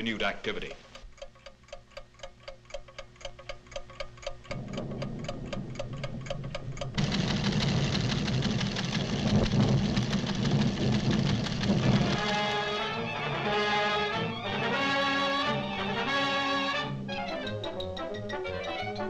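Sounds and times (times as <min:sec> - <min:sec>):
seismograph clockwork ticking: 0:00.0 - 0:13.0
low rumbling: 0:04.5 - 0:14.6.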